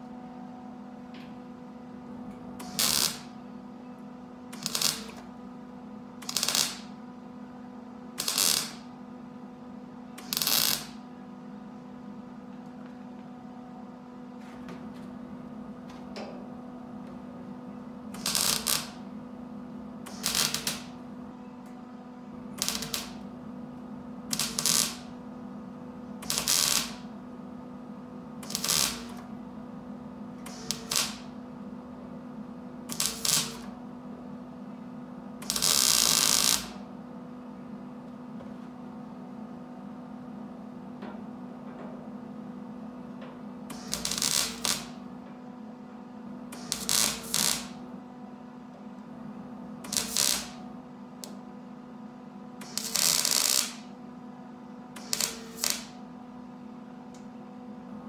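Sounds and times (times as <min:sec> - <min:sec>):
steady low hum: 0:00.0 - 0:52.9
welder bursts: 0:02.6 - 0:03.4, 0:04.5 - 0:05.2, 0:06.2 - 0:06.9, 0:08.2 - 0:08.8, 0:10.2 - 0:11.0, 0:18.1 - 0:19.0, 0:20.1 - 0:20.9, 0:22.6 - 0:23.2, 0:24.3 - 0:25.1, 0:26.2 - 0:27.1, 0:28.4 - 0:29.2, 0:30.4 - 0:31.3, 0:32.9 - 0:33.7, 0:35.4 - 0:36.8, 0:43.7 - 0:45.0, 0:46.6 - 0:47.8, 0:49.8 - 0:50.6, 0:52.6 - 0:53.8, 0:55.0 - 0:55.9.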